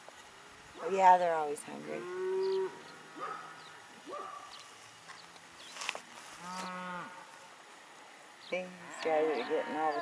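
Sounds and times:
cattle mooing: 8.8s - 10.0s.

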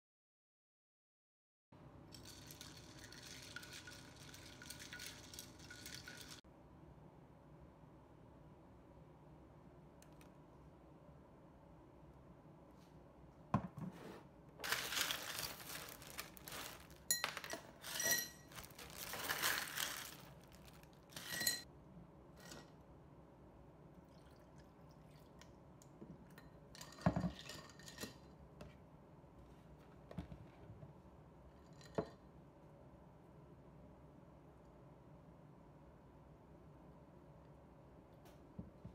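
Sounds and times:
ice cubes clinking in glass: 2.1s - 6.4s, 14.6s - 21.6s.

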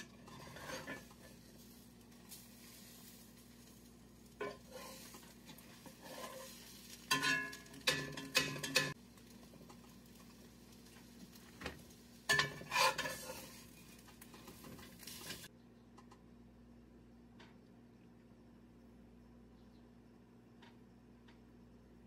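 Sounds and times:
metal spatula scraping skillet: 0.0s - 9.0s, 12.2s - 15.5s
faint sizzle: 0.0s - 16.2s.

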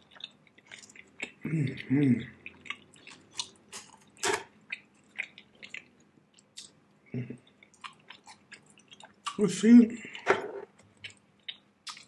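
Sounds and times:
chewing with wet mouth clicks: 0.0s - 6.8s, 7.4s - 9.4s, 10.8s - 12.0s
lip smacks: 11.0s - 12.0s.

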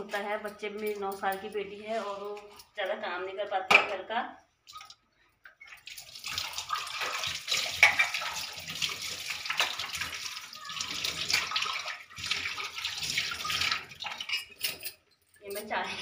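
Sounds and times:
tap water splashing into sink: 4.7s - 14.4s
steel glasses being rinsed: 4.7s - 16.0s.

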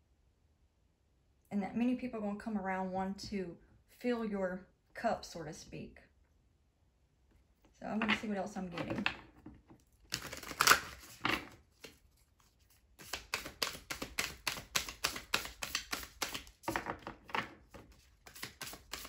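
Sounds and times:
cards rustling: 9.9s - 16.8s, 17.6s - 19.0s.

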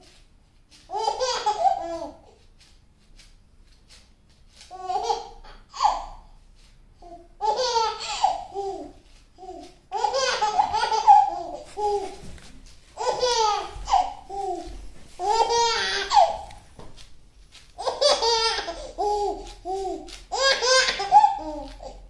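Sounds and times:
baby laughing: 0.9s - 2.2s, 4.7s - 6.2s, 7.4s - 16.6s, 17.8s - 22.0s.

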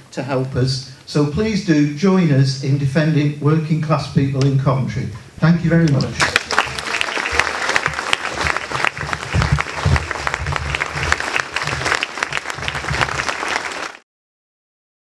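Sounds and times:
large audience applauding: 6.2s - 14.0s.

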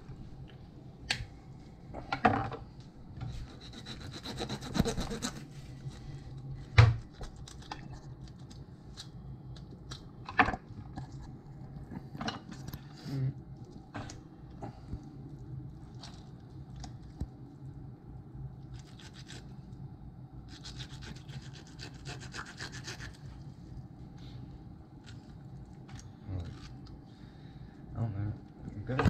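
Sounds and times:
knife sawing through fish: 3.4s - 5.5s, 20.6s - 23.2s.

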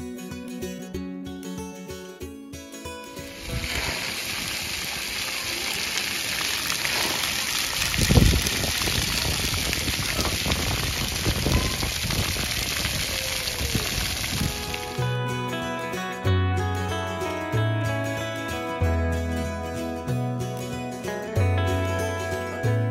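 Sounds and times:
water jets spraying onto concrete: 3.3s - 15.2s.

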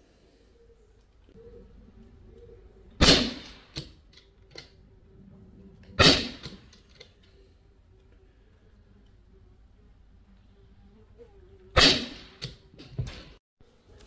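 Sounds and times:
air rifle shots: 3.0s - 3.9s, 6.0s - 6.6s, 11.8s - 12.5s.

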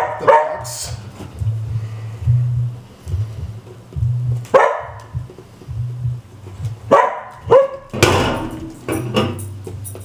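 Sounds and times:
dog barking: 0.0s - 0.8s, 4.5s - 5.1s, 6.9s - 7.9s.

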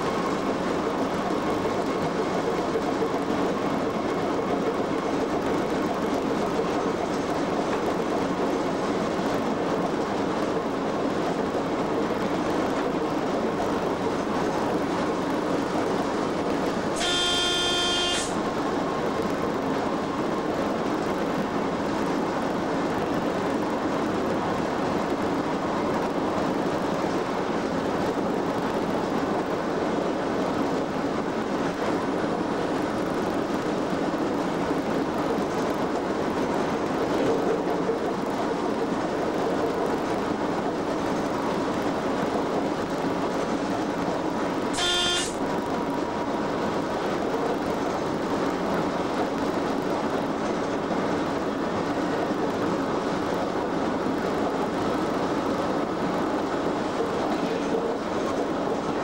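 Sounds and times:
locomotive cab running noise: 0.0s - 59.0s
short sharp pitched tone: 17.0s - 18.4s, 44.8s - 45.4s.

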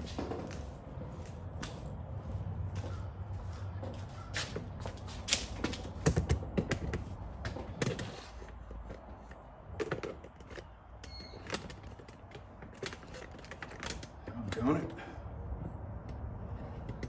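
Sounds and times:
tools and metal hardware clicking: 7.8s - 14.8s.

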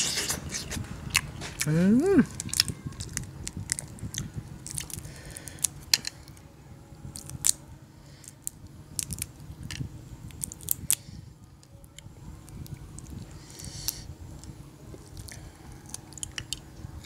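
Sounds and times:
chewing with mouth noises: 0.0s - 6.1s, 12.6s - 16.7s
prawn shell cracking: 2.3s - 6.4s, 8.2s - 11.0s.

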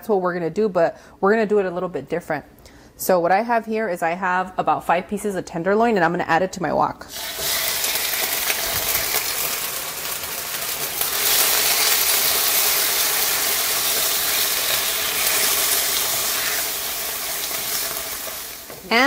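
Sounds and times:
chicken sizzling in hot oil: 7.1s - 18.9s.

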